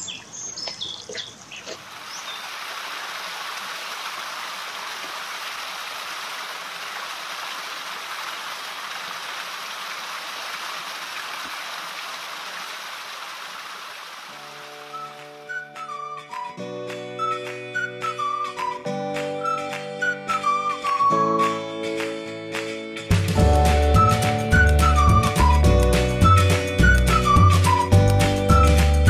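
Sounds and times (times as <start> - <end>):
birds chirping: 0.0 - 2.6
stream splashing over rocks: 0.7 - 15.3.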